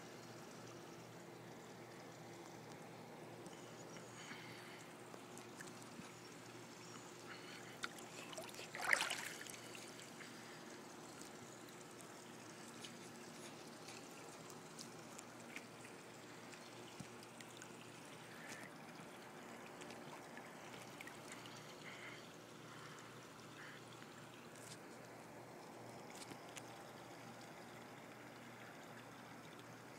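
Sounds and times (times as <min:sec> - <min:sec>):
pool water lapping: 0:00.2 - 0:29.9
water splash: 0:08.3 - 0:09.7.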